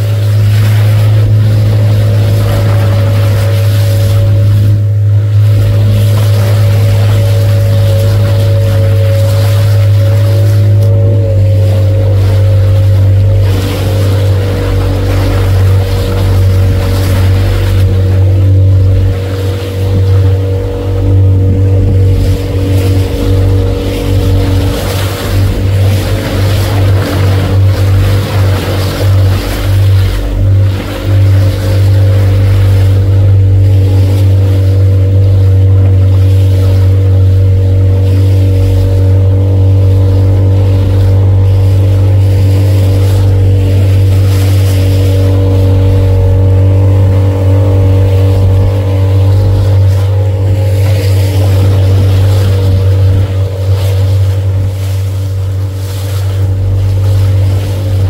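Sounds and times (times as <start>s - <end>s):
motorboat engine drone: 0.0s - 58.0s
water splashing against hull: 0.0s - 58.0s.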